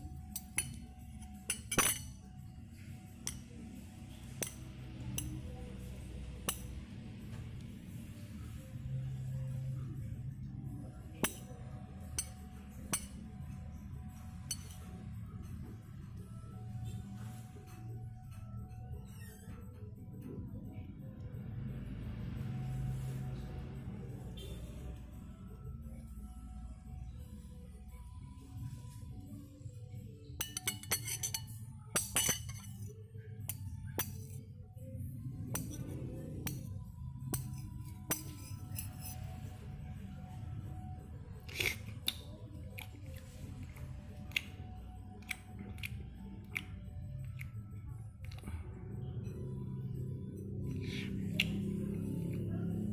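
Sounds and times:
spoons clinking bowls: 0.0s - 5.6s, 11.1s - 15.8s, 30.2s - 39.8s, 41.3s - 48.6s, 49.2s - 52.9s
faint background music: 0.0s - 52.9s.

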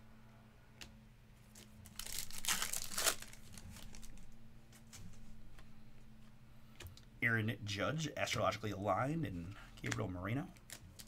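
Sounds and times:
foil wrapper tearing and crinkling: 1.5s - 4.2s, 9.8s - 11.0s.

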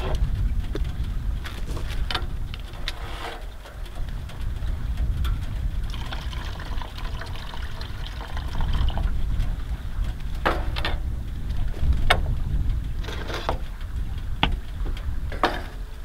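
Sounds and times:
steady low rumble: 0.0s - 16.0s
water pouring into container: 5.9s - 9.1s.

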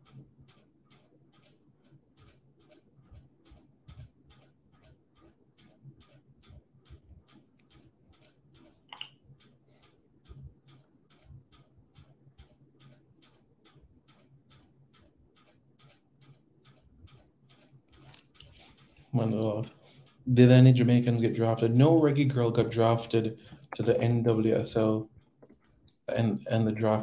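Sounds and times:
faint evenly spaced clicking: 0.0s - 27.0s.

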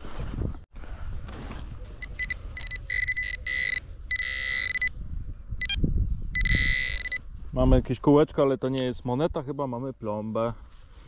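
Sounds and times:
metal detector high buzz: 2.1s - 4.9s, 6.4s - 7.2s.

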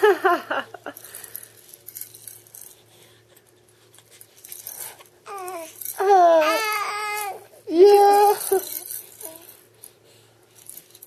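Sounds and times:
baby rattle shaken: 0.8s - 11.0s
infant fussing cry: 5.3s - 8.4s.

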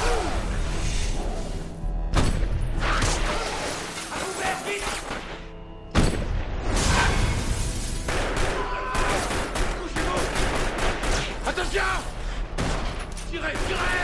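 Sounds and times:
pistol gunshots: 8.0s - 11.5s.

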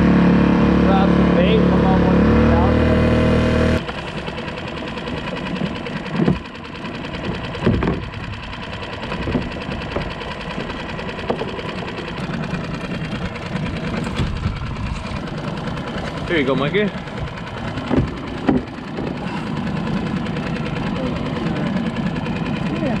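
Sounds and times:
boat motor idling: 0.0s - 23.0s
dull thumps: 6.1s - 6.5s, 7.3s - 8.2s, 17.6s - 19.4s.

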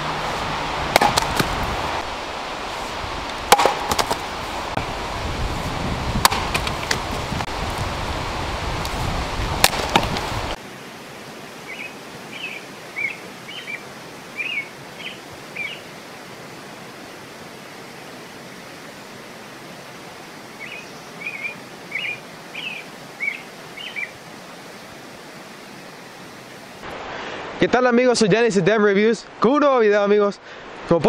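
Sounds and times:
outdoor hiss: 0.0s - 31.0s
axe chopping wood: 0.9s - 1.6s, 3.5s - 4.2s, 6.2s - 7.0s, 9.6s - 10.2s
small bird chirping: 11.7s - 13.8s, 14.4s - 15.8s, 20.6s - 24.1s.

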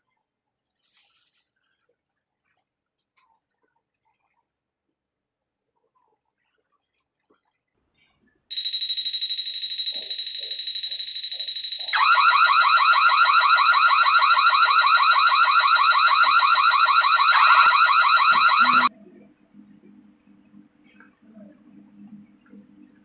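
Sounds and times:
shrill pulsing high beep: 8.5s - 18.9s
warbling alarm tone: 8.5s - 18.9s.

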